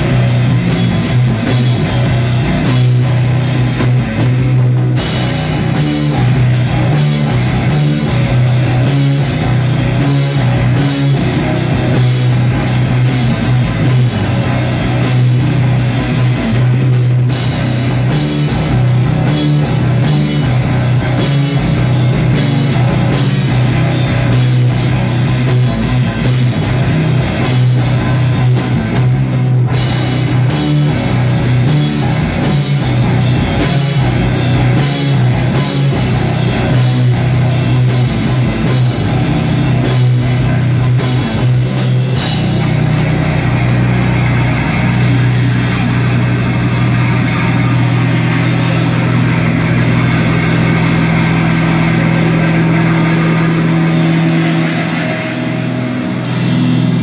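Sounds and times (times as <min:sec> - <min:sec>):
heavy rock band playing: 0:00.0 - 0:57.0
rapid drum hits: 0:00.0 - 0:57.0.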